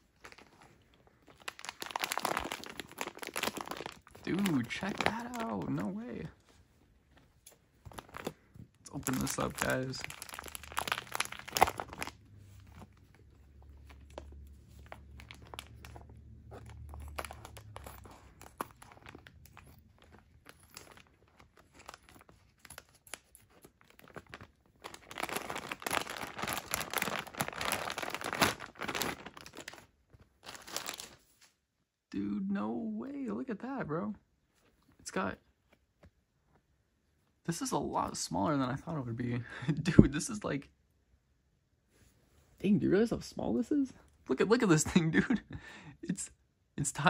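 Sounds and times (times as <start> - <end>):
plastic bag crinkling: 0.0 - 31.4.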